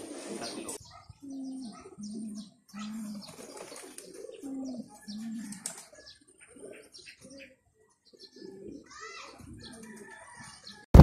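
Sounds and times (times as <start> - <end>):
pigeons cooing: 0.0 - 10.8.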